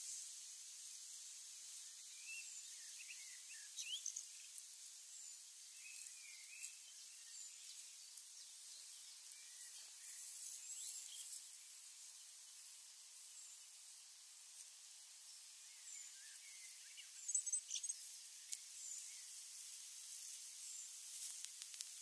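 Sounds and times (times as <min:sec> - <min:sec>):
steady high hiss: 0:00.0 - 0:22.0
birds chirping and whistling: 0:02.2 - 0:04.2, 0:15.7 - 0:18.0.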